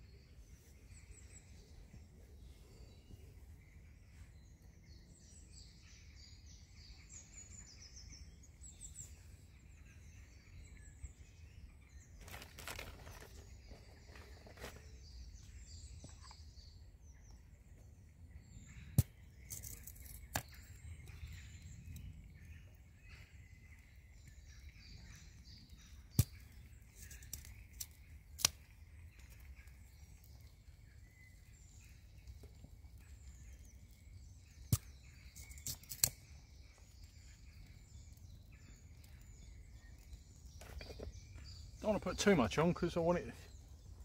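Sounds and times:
faint birdsong: 0:00.0 - 0:44.0
dry twigs snapping: 0:12.2 - 0:13.5, 0:19.0 - 0:20.6, 0:26.1 - 0:29.6, 0:34.4 - 0:37.6.

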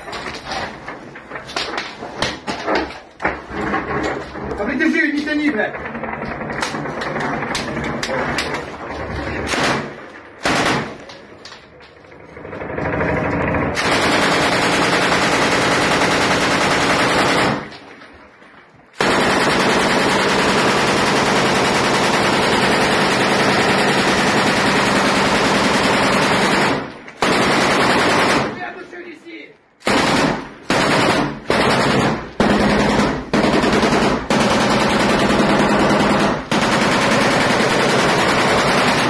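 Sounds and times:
machine gun automatic fire: 0:05.6 - 0:11.3, 0:12.1 - 0:17.8, 0:18.9 - 0:28.6, 0:29.8 - 0:39.0.

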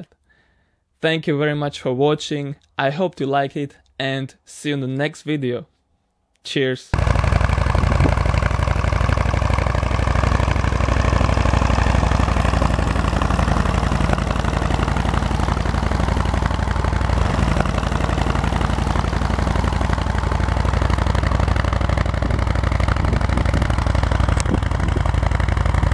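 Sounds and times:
engine idling: 0:07.0 - 0:25.9.

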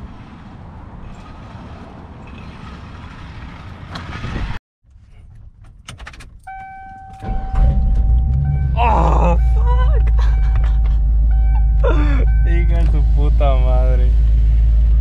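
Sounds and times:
wind: 0:00.0 - 0:15.0
car warning chime: 0:06.4 - 0:13.2.

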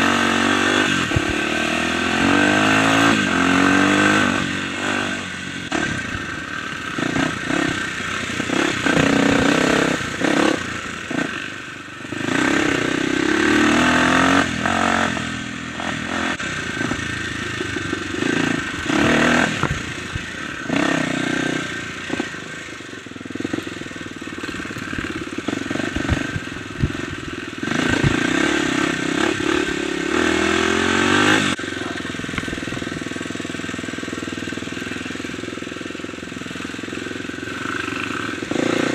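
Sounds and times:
dirt bike engine revving: 0:00.0 - 0:38.9
bike rattling over bumps: 0:16.0 - 0:30.2.

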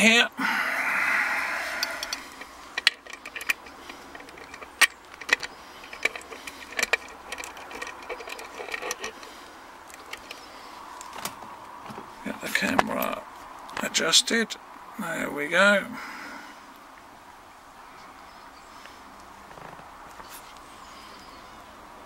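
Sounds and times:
metallic clicks and knocks: 0:01.8 - 0:10.4.

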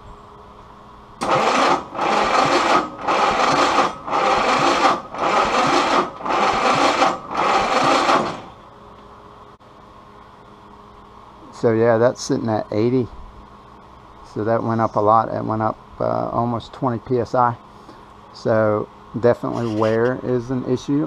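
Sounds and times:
engine starter motor cranking: 0:01.2 - 0:08.6.

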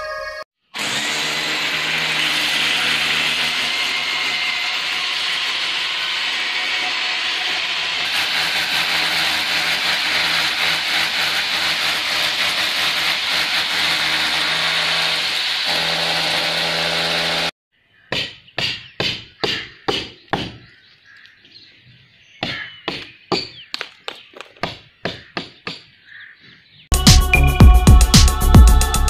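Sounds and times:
power drill boring through metal: 0:00.8 - 0:17.6.

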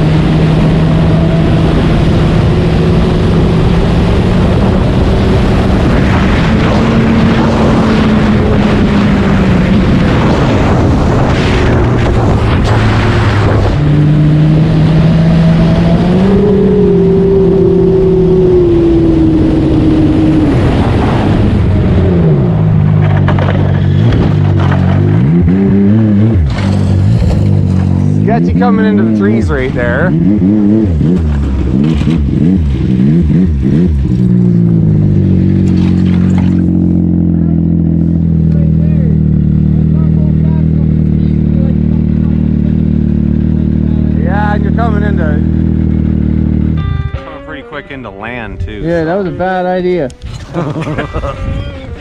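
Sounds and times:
wind noise: 0:00.0 - 0:37.1, 0:45.4 - 0:52.0
snowmobile engine running hard: 0:23.7 - 0:52.0.

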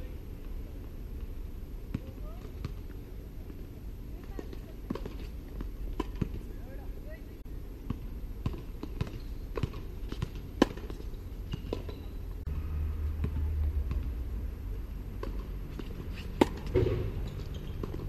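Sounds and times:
steady low rumble: 0:12.2 - 0:17.3
tennis ball pocks: 0:15.2 - 0:18.0
tennis racket hit: 0:15.2 - 0:18.0.

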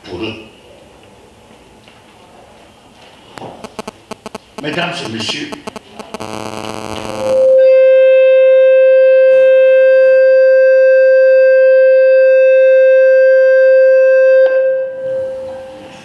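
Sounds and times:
microphone feedback howl: 0:03.6 - 0:15.7.

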